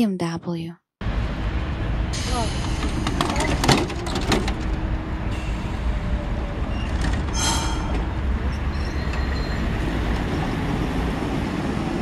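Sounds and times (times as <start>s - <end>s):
tram wheels rumbling: 1.0s - 12.0s
high-pitched wheel squeal: 6.6s - 9.8s.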